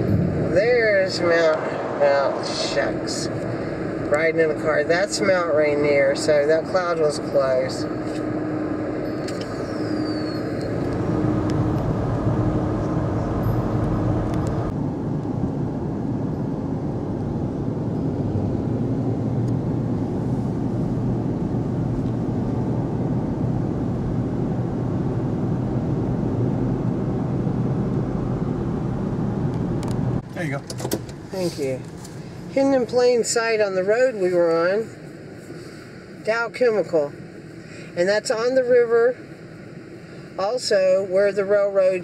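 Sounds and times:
car road noise from inside: 0.0s - 42.0s.

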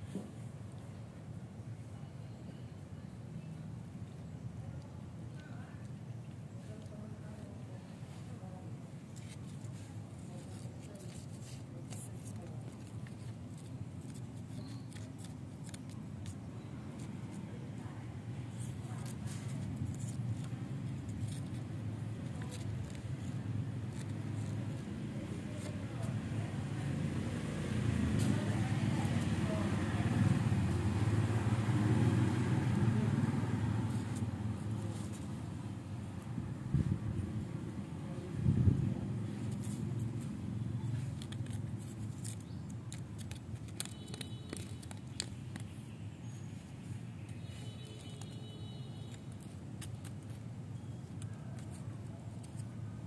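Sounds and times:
leaf scratching on floor: 7.9s - 17.9s, 18.5s - 35.6s, 39.2s - 52.8s.

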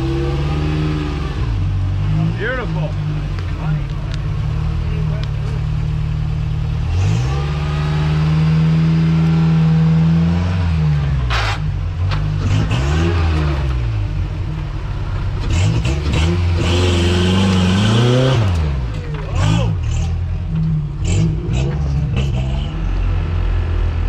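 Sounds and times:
buggy engine revving: 0.0s - 24.0s.

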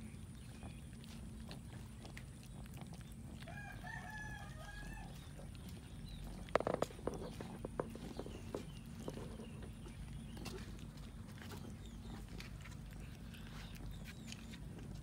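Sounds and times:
cats chewing wet clicks: 0.0s - 15.0s
distant rooster crowing: 3.5s - 5.2s.

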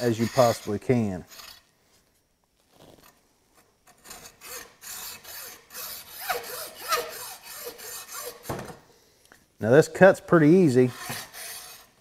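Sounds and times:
hacksaw rasping: 0.0s - 1.6s, 3.9s - 8.6s, 10.7s - 12.0s
saw blade squeaks: 0.0s - 1.6s, 4.0s - 8.5s, 10.7s - 12.0s.

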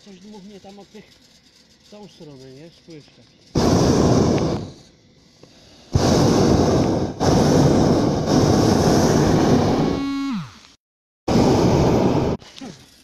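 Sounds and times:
propane burner blasting: 0.0s - 10.3s, 11.3s - 13.0s
valve whistle: 5.9s - 12.4s.

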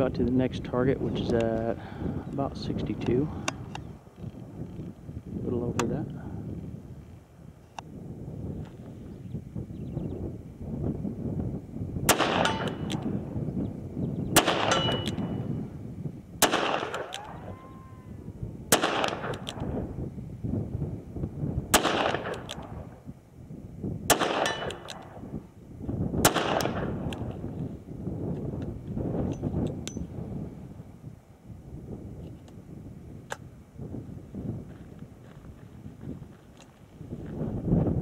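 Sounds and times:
steel target ringing: 14.5s - 15.4s.

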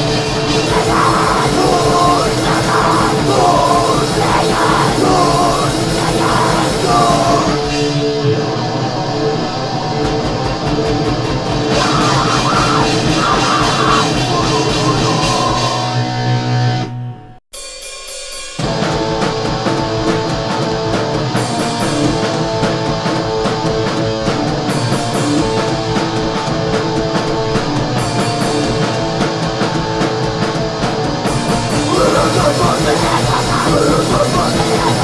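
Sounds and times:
shouted vocals: 0.0s - 7.7s, 11.7s - 15.9s, 31.7s - 35.0s
fast drumming: 0.0s - 7.9s, 9.8s - 15.9s, 17.6s - 35.0s
distorted guitars: 0.0s - 17.4s, 18.6s - 35.0s.

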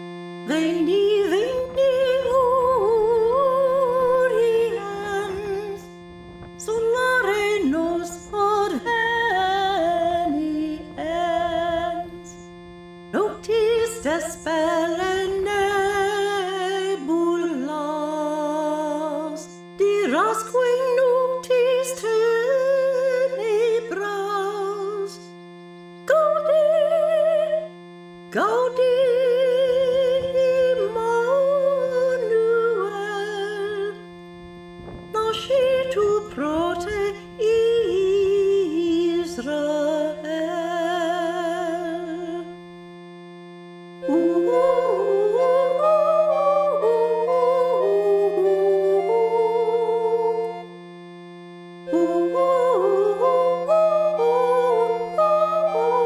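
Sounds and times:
steady held drone: 0.0s - 56.0s
solo voice singing hymn: 0.4s - 5.9s, 6.7s - 12.5s, 35.2s - 42.6s, 44.0s - 50.7s, 51.9s - 56.0s.

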